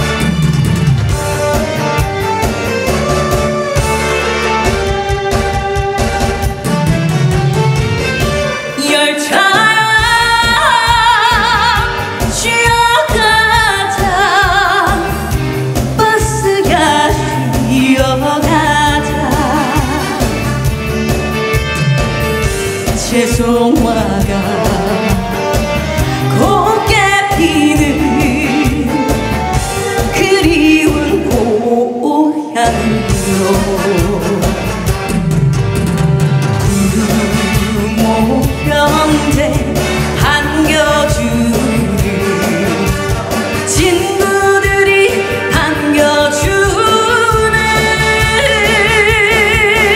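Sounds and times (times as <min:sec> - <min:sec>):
band with steady beat: 0:00.0 - 0:08.8, 0:09.9 - 0:31.6, 0:32.7 - 0:49.9
woman singing with vibrato: 0:08.7 - 0:20.5, 0:22.9 - 0:34.9, 0:36.6 - 0:49.9.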